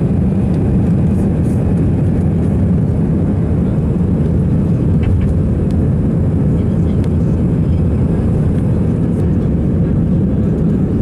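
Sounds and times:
jet engines rumbling: 0:00.0 - 0:11.0.

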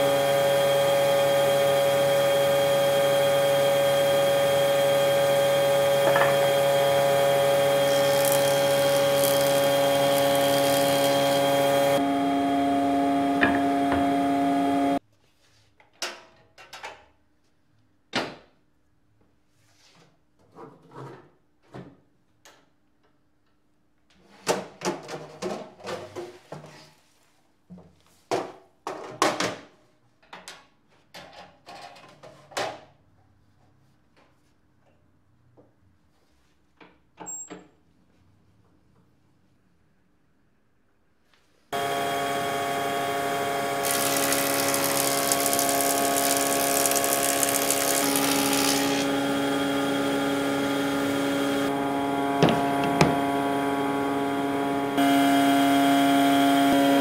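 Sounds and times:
woodworking machinery drone: 0:00.0 - 0:15.0, 0:41.8 - 0:57.0.

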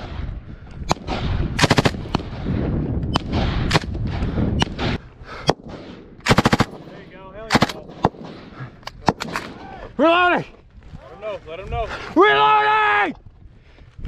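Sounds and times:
machine gun firing bursts: 0:01.6 - 0:02.2, 0:06.3 - 0:06.9, 0:07.5 - 0:08.4
single gunshots: 0:04.6 - 0:09.6.

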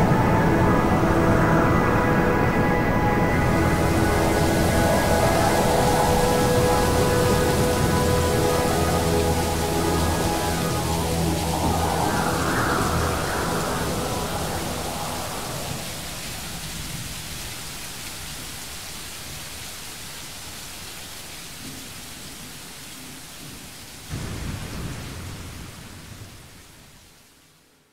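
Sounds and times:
music: 0:00.0 - 0:16.0
low thunder rumble: 0:00.0 - 0:17.0, 0:24.1 - 0:26.7
rain hiss: 0:00.0 - 0:27.9.

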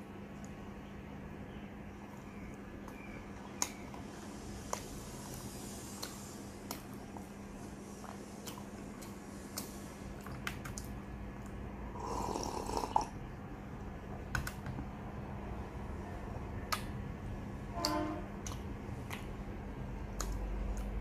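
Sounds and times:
steady low hum: 0:00.0 - 0:21.0
person slurping: 0:11.9 - 0:13.2.

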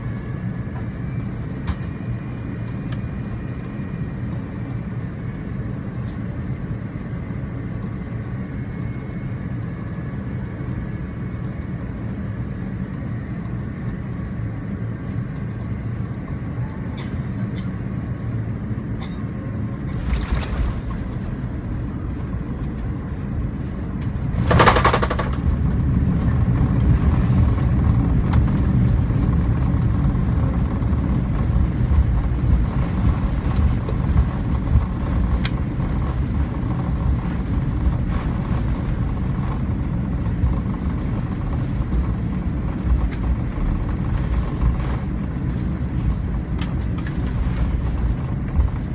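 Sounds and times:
jet engines and airflow rumble: 0:00.0 - 0:48.9.

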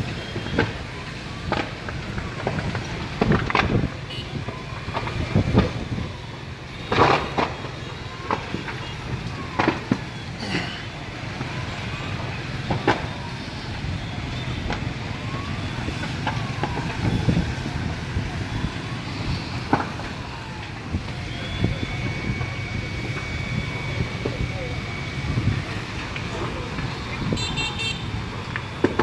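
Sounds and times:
road traffic rumble: 0:00.0 - 0:29.0
sharp cracks: 0:06.8 - 0:10.2.

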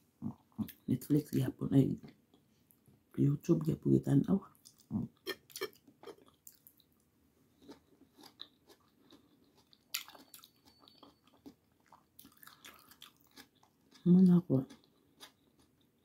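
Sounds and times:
person chewing food: 0:04.5 - 0:16.0.

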